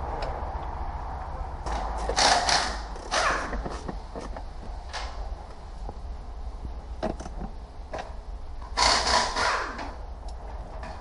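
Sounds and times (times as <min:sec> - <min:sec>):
scraping and rustling: 0:01.7 - 0:04.8.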